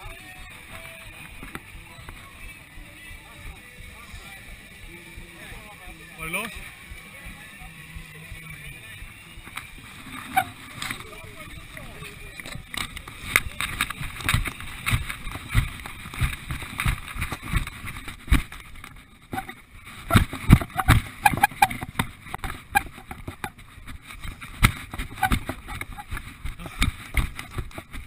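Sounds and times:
rustling noise: 12.7s - 28.0s
running footsteps thudding: 13.5s - 28.0s.

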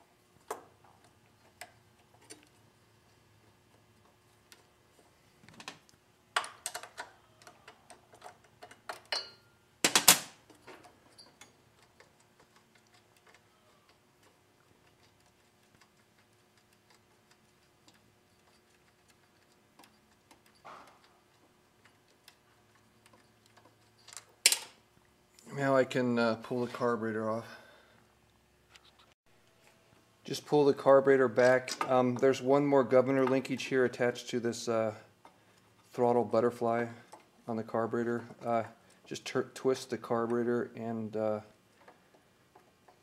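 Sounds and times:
small metallic clicks and ticks: 5.5s - 9.2s, 10.5s - 24.8s, 38.0s - 43.0s.

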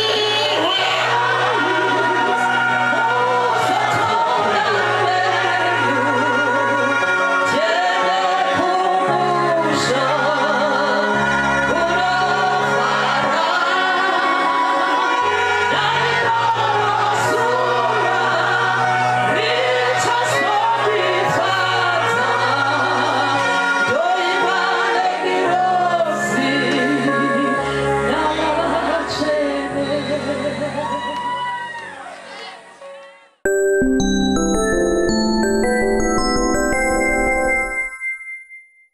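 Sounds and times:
gospel singing voices: 0.0s - 31.4s.

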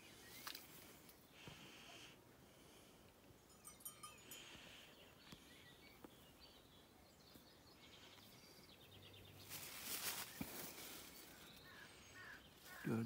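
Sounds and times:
leaves rustling against phone: 0.1s - 1.2s, 9.4s - 13.0s.

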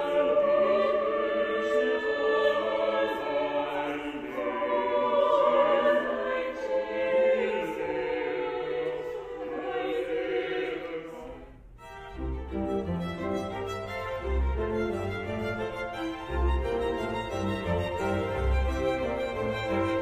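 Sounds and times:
choir singing: 0.0s - 20.0s
string ensemble playing: 11.8s - 20.0s.

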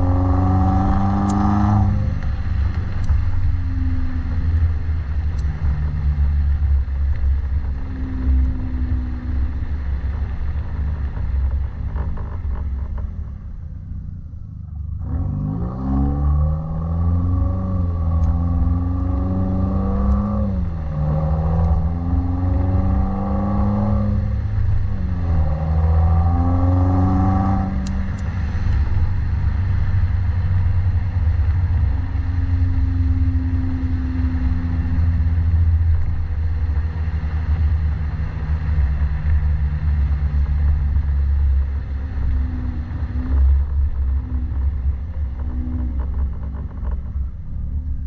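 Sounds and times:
car engine revving: 0.0s - 48.0s.

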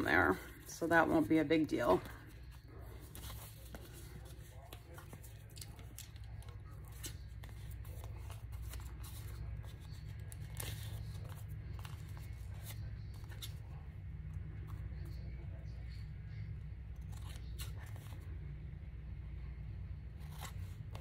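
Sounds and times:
steady low hum: 0.0s - 21.0s
paper rustling: 1.8s - 13.8s.

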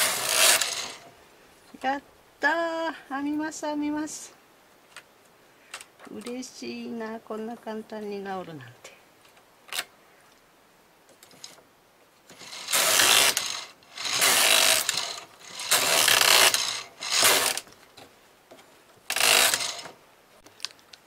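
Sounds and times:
knitting machine carriage passing: 0.0s - 1.0s, 12.4s - 17.6s, 19.1s - 19.9s.

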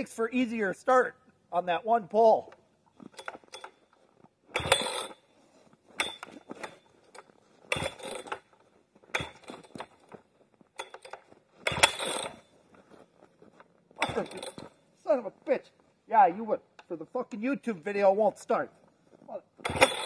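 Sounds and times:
chainsaw recoil starter pulls: 3.1s - 3.9s, 4.5s - 5.2s, 6.0s - 10.2s, 10.8s - 12.5s, 14.0s - 14.8s, 19.6s - 20.0s.

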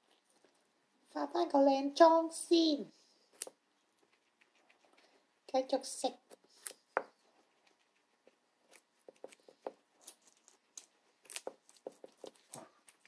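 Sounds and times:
guinea pigs chewing carrot: 3.2s - 13.0s.

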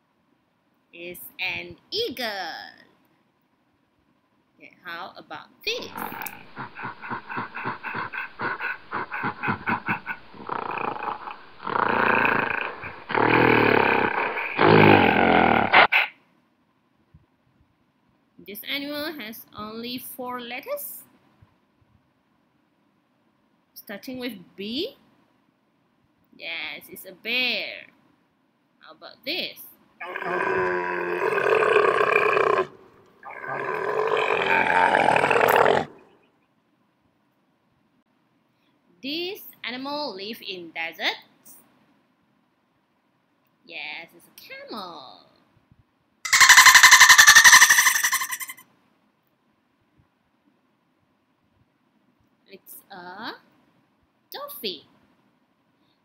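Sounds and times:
bear growling deeply: 5.8s - 15.9s, 30.0s - 36.2s
camel groaning: 5.8s - 15.9s, 30.0s - 36.2s
bear huffing: 5.8s - 16.1s, 31.2s - 36.2s.

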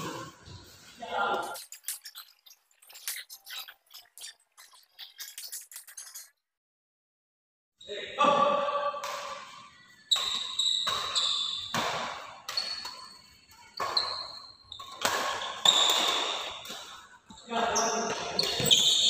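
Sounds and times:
shoes squeaking on court: 0.0s - 6.3s, 9.3s - 19.0s
rackets hitting shuttlecock: 9.0s - 17.0s.

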